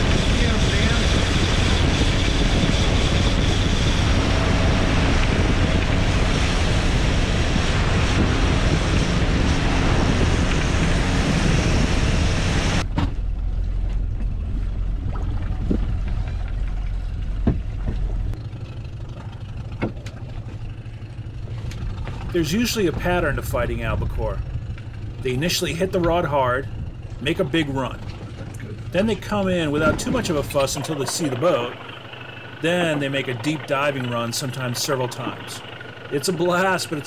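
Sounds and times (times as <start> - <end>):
wind rushing: 0.0 - 12.9
low engine rumble: 0.0 - 37.0
outboard motor running: 0.0 - 37.0
wake water splashing: 13.5 - 37.0.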